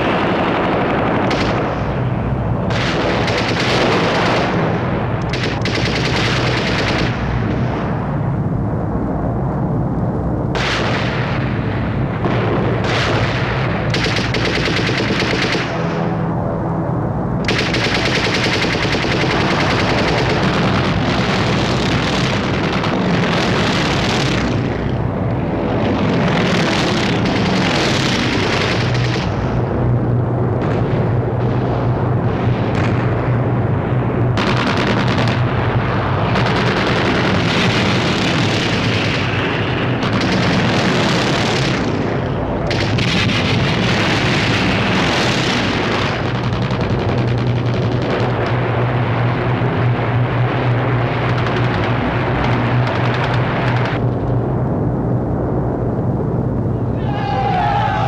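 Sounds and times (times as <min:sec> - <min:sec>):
low rumble: 0:00.0 - 0:58.0
machine-gun and rifle fire: 0:01.2 - 0:01.8, 0:02.7 - 0:07.4, 0:10.6 - 0:11.4, 0:12.2 - 0:16.0, 0:17.4 - 0:24.8, 0:26.2 - 0:29.5, 0:34.4 - 0:49.0, 0:50.4 - 0:54.0.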